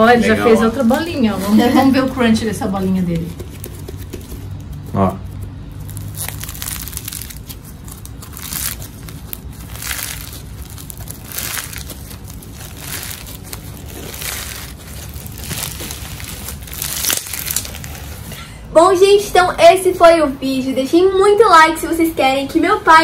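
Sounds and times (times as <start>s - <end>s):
crunchy slime being squeezed: 3.3s - 18.4s.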